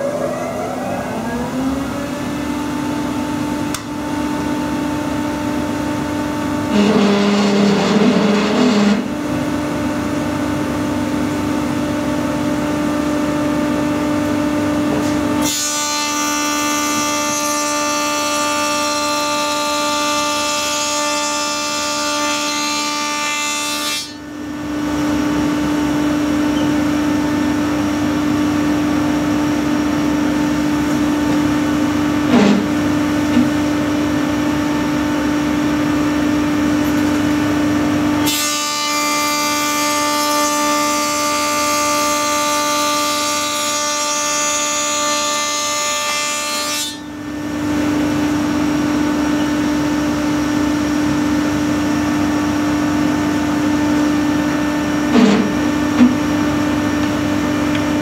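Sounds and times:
planer cutting a board: 0.0s - 4.8s, 5.4s - 9.2s, 14.8s - 24.2s, 28.8s - 35.2s, 38.1s - 47.1s, 53.4s - 58.0s
planer humming: 0.0s - 4.8s.

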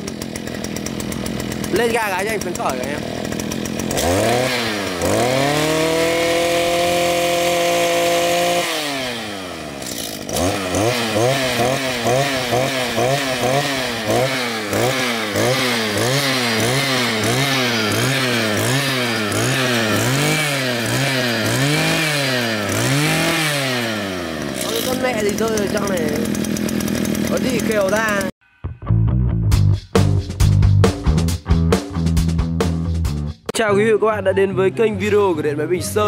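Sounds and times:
brush cutter engine revving: 0.0s - 28.4s.

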